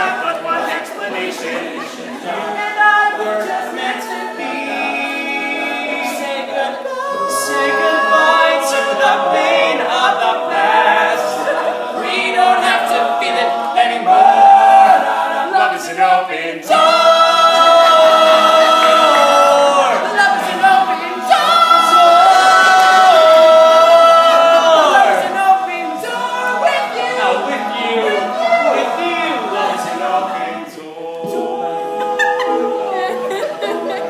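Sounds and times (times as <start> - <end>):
male a cappella group singing: 0.0 - 34.0.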